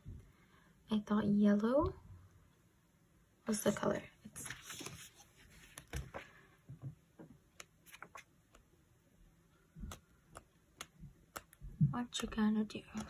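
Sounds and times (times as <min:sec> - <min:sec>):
paper and stickers clicking and tapping: 0:09.8 - 0:13.0.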